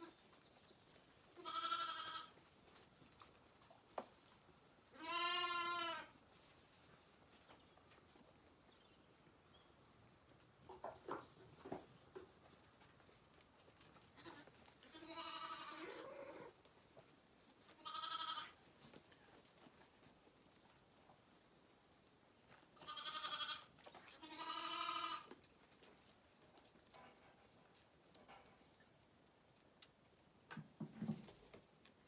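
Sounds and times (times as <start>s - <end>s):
lambs bleating: 1.4s - 2.4s, 5.0s - 6.1s, 14.2s - 16.5s, 17.8s - 18.6s, 22.8s - 25.3s.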